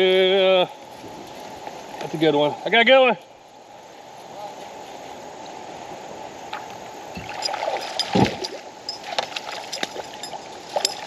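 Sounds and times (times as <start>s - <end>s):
river water gurgling: 6.2s - 11.0s
water splashes: 6.5s - 11.0s.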